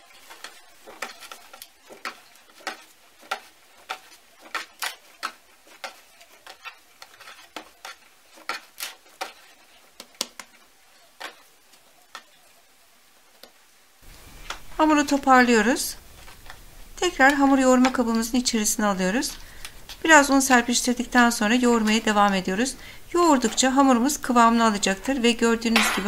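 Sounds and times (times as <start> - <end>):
dough slapping on wooden board: 0.2 - 10.6.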